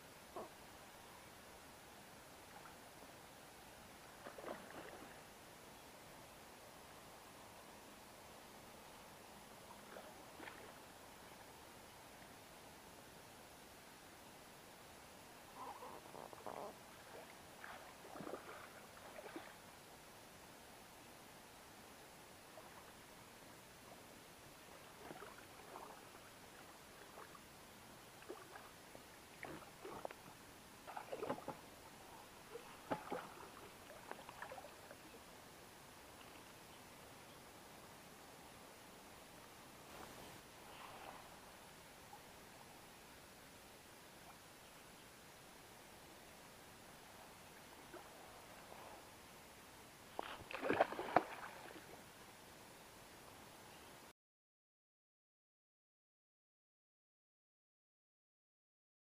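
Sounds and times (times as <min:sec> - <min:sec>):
faint background hiss: 0:00.0 - 0:54.1
fish splashing at water surface: 0:50.2 - 0:51.8.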